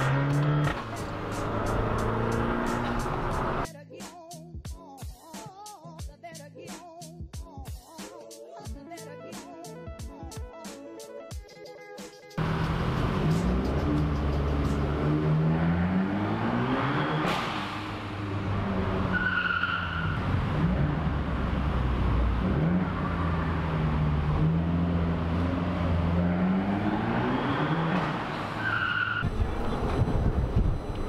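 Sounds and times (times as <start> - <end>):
car engine revving: 0.0 - 3.7, 12.4 - 30.4
tyres squealing on concrete: 19.0 - 20.2, 27.3 - 29.3.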